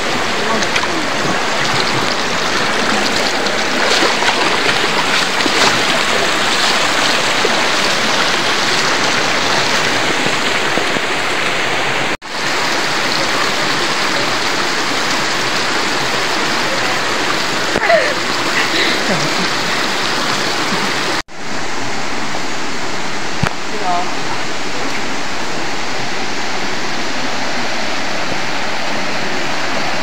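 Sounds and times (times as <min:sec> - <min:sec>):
water rushing over rocks: 0:00.0 - 0:30.0.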